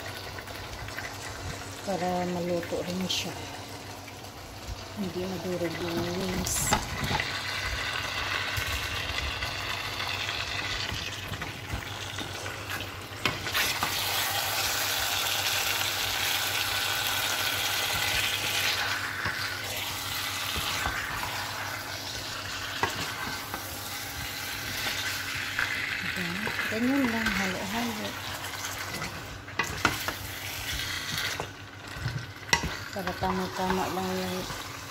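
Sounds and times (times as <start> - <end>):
food sizzling in a pan: 0.0 - 34.9
spatula stirring food: 17.6 - 34.9.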